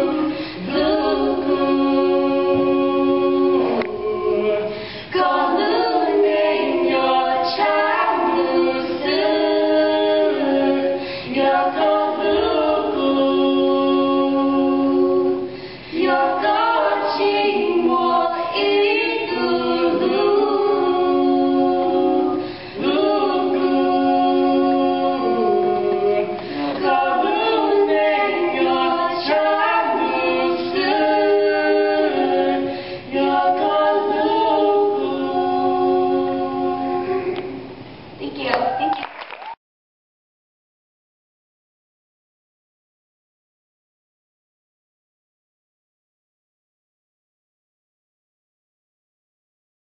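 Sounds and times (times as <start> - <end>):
women singing a cappella harmony: 0.0 - 37.9.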